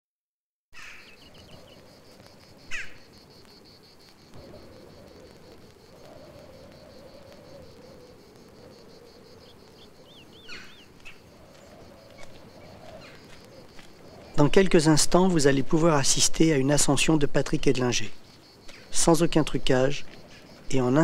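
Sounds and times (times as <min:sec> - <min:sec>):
sweeping bird chirps: 0:00.8 - 0:03.2, 0:04.4 - 0:14.4
insects chirring: 0:00.8 - 0:21.0.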